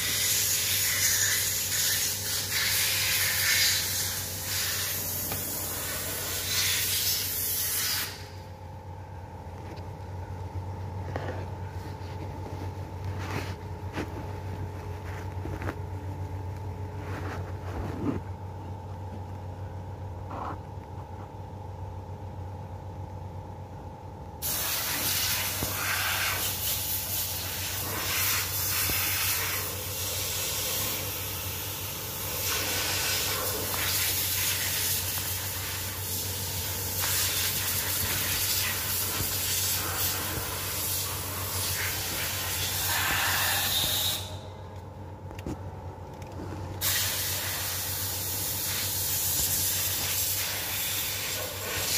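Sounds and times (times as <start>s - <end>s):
steady hiss: 0.0s - 8.5s, 24.4s - 44.5s, 46.8s - 51.9s
low steady hum: 0.0s - 51.9s.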